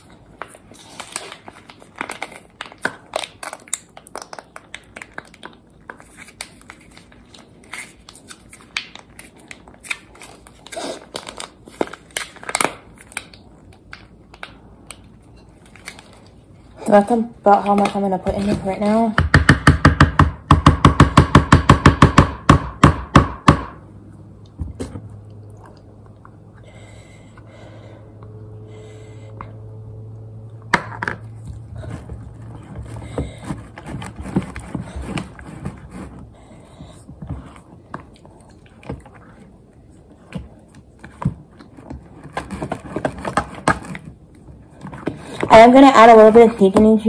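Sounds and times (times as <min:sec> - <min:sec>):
low steady hum: 0:20.3 - 0:47.0.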